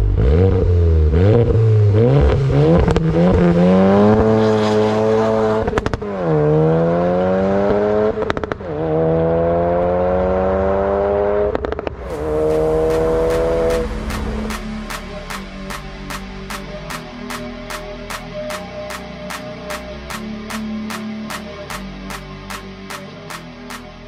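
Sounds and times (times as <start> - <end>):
car engine revving: 0.0 - 24.0
exhaust crackles and pops: 5.6 - 6.1, 8.2 - 8.6.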